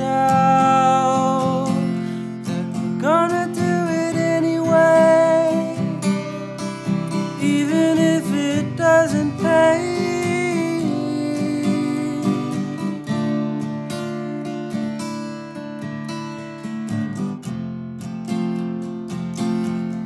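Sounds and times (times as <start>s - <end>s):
man singing: 0.0s - 13.0s
strummed acoustic guitar: 0.0s - 20.0s.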